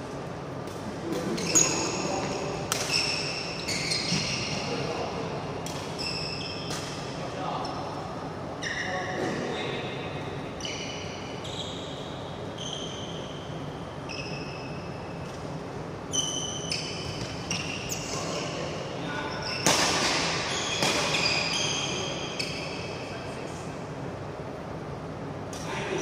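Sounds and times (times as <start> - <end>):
shoe squeaks on court: 1.3 - 4.8, 6.0 - 6.9, 8.6 - 9.4, 10.6 - 15.4, 16.1 - 18.6, 19.2 - 23.1
racket hitting shuttlecock: 2.7 - 3.4, 5.6 - 6.0, 6.6 - 7.1, 19.6 - 21.5.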